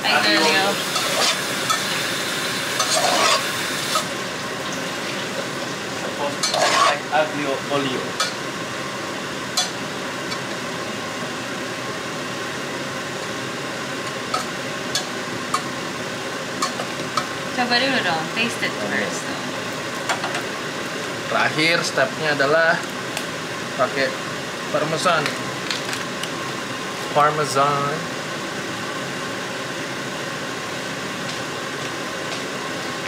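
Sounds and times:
pasta sizzling in oil: 0.0s - 21.7s
spatula scraping and clinking pot: 2.8s - 3.5s, 6.4s - 7.0s.

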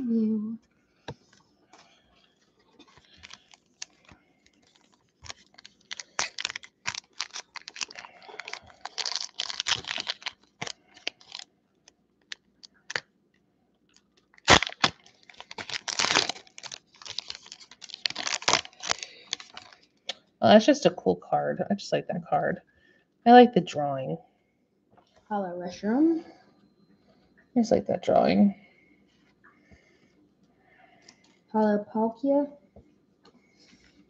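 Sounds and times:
foil wrapper crinkling: 1.8s - 11.5s, 12.2s - 13.0s, 14.0s - 20.0s
foil wrapper tearing: 2.8s - 11.5s, 14.2s - 19.9s.

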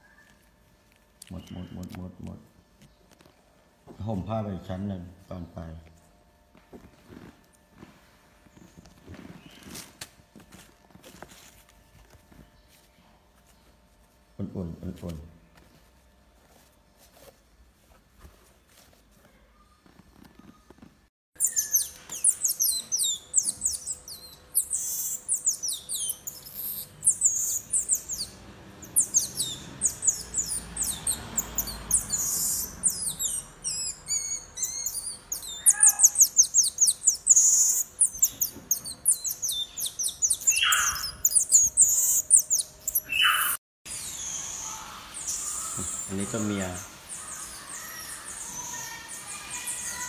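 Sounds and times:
marmosets chirping: 1.2s - 2.3s, 21.4s - 50.0s.

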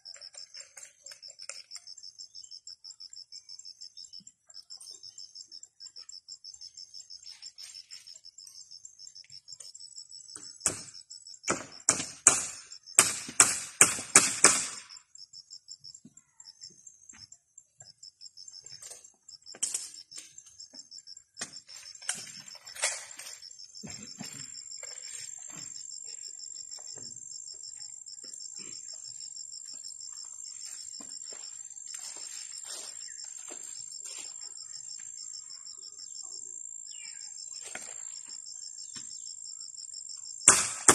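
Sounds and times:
crickets chirping: 0.0s - 40.9s
tool striking wooden post: 10.4s - 14.9s, 40.4s - 40.9s.

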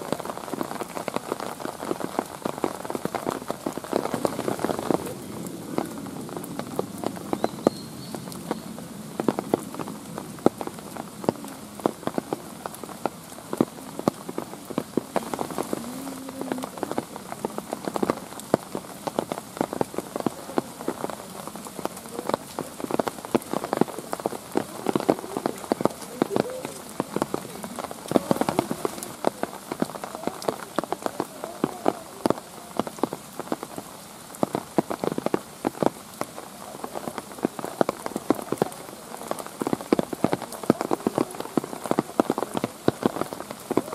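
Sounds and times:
raindrops ticking on hard surfaces: 0.0s - 43.9s
steady rain: 0.0s - 43.9s.

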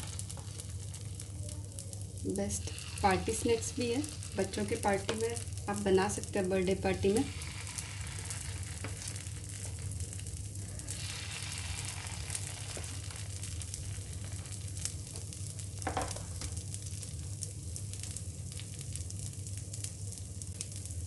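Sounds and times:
batter sizzling in oil: 0.0s - 21.0s
low steady hum: 0.0s - 21.0s.

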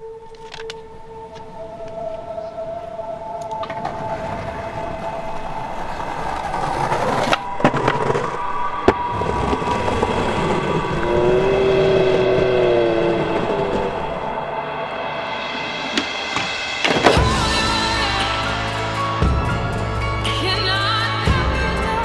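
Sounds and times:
sustained droning tones: 0.0s - 22.0s
skateboard wheels rolling on concrete: 3.4s - 14.6s.

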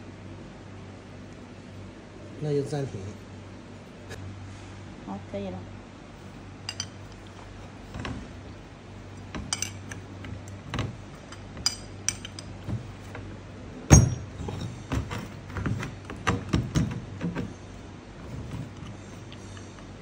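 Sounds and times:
spanner clinking on metal: 6.7s - 7.0s, 9.4s - 10.1s, 11.2s - 12.6s, 13.9s - 15.2s.

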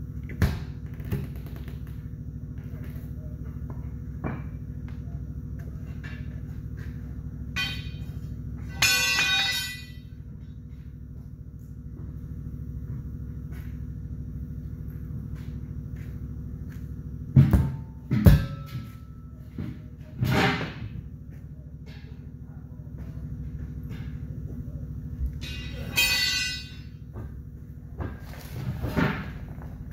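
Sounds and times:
low machine hum: 0.0s - 29.9s
sharp metallic clang: 7.6s - 10.1s, 25.4s - 27.0s.

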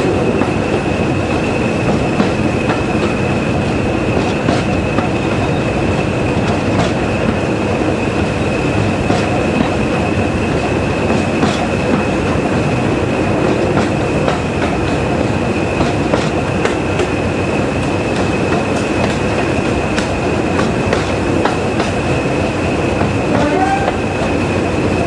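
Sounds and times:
train running noise: 0.0s - 25.0s
wheels clicking over rail joints: 9.1s - 12.7s, 13.3s - 24.4s.

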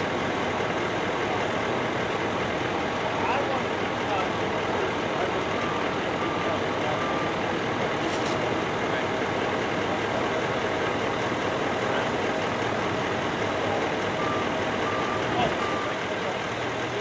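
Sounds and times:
trucks idling: 0.0s - 17.0s
reversing alarm beep: 5.4s - 7.6s, 14.2s - 16.1s.

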